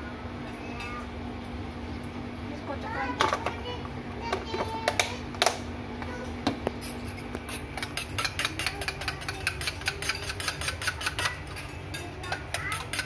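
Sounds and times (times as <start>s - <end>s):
spoon clinking against metal bowl: 7.4s - 13.0s.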